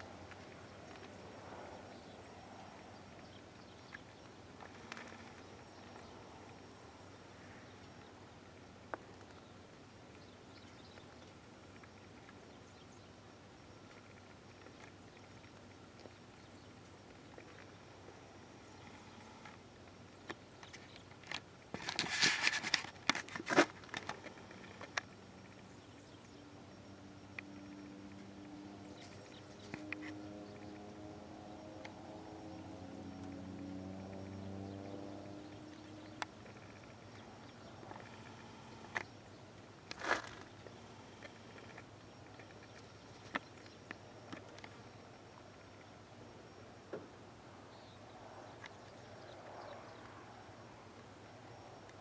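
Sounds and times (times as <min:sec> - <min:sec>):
distant plane engine drone: 0:00.0 - 0:52.0
quiet rural ambience: 0:00.0 - 0:52.0
crackling rustling near microphone: 0:13.6 - 0:26.2.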